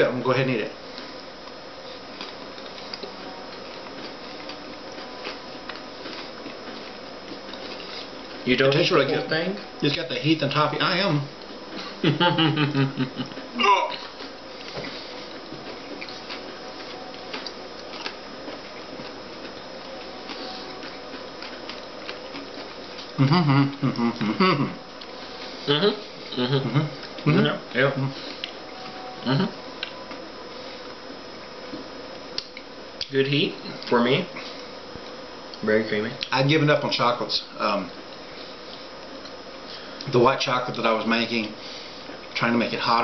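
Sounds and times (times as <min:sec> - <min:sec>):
steady background hiss: 0:00.0 - 0:43.0
chocolates being chewed: 0:01.0 - 0:08.8, 0:13.2 - 0:24.2.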